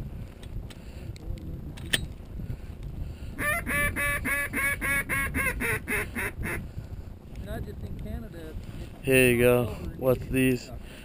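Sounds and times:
duck call quacks: 0:03.4 - 0:06.6.

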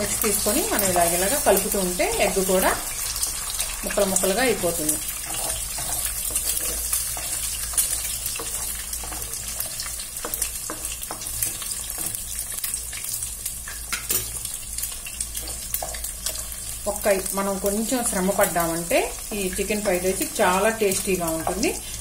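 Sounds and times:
eggs sizzling in hot oil: 0:00.0 - 0:22.0
wooden spatula scraping a pan: 0:04.0 - 0:12.6.

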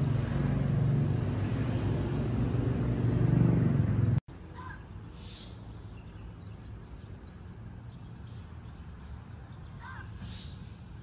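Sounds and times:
low engine hum: 0:00.0 - 0:04.2
outdoor ambience: 0:00.0 - 0:11.0
faint bird calls: 0:04.5 - 0:06.3, 0:09.5 - 0:10.8.

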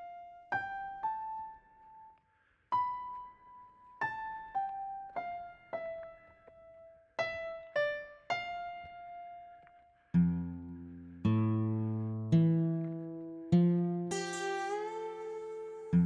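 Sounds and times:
slow piano melody: 0:00.0 - 0:16.0
low piano chord: 0:11.8 - 0:16.0.

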